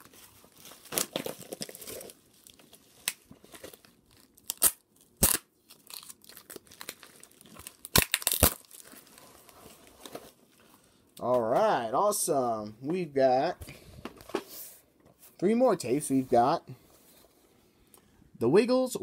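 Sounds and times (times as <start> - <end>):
packaging ripping: 0.0 - 10.2
packaging crinkling and rustling: 0.0 - 10.9.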